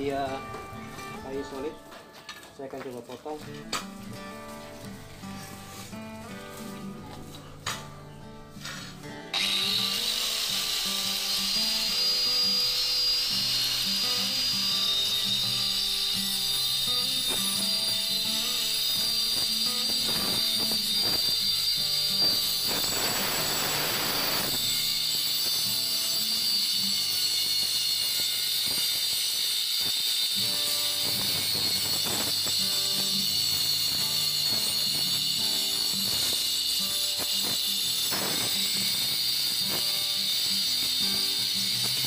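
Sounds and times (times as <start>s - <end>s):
angle grinder cutting wood: 8.6s - 42.0s.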